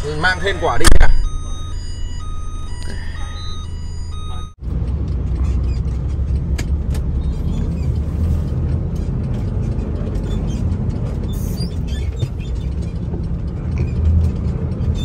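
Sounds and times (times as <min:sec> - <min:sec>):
short steady beeping: 0:00.0 - 0:04.6
diesel truck engine rumble: 0:00.0 - 0:15.0.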